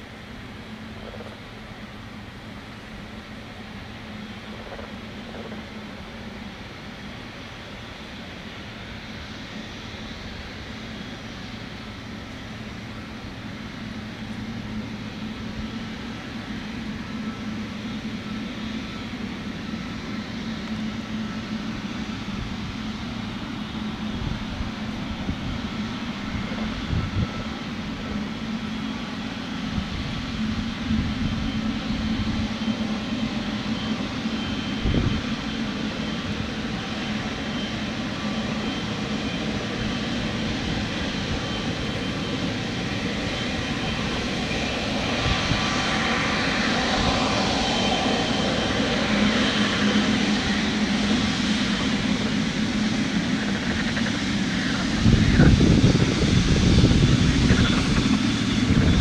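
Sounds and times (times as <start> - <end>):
jet engine roar with whine: 0.0 - 59.0
wind buffeting microphone: 23.6 - 28.8, 29.5 - 37.4, 38.4 - 59.0.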